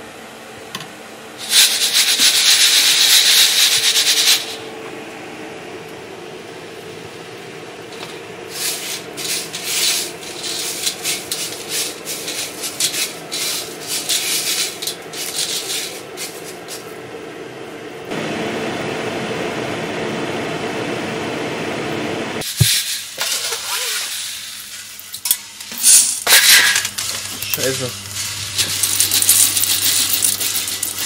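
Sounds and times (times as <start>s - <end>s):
roaster humming: 0.0s - 31.0s
coffee beans rustling and scraping: 1.4s - 4.6s, 7.9s - 17.0s, 22.4s - 25.0s, 25.7s - 31.0s.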